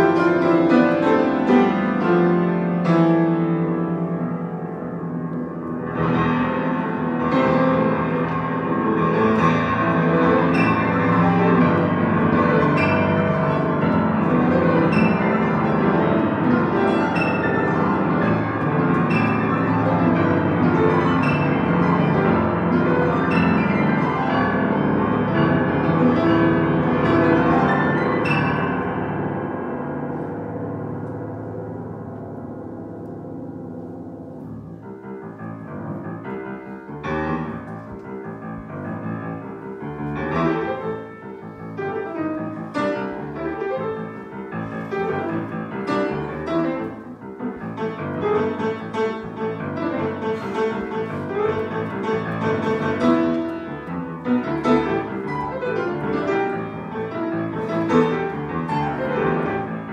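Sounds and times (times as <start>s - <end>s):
grand piano chords: 0.0s - 59.9s.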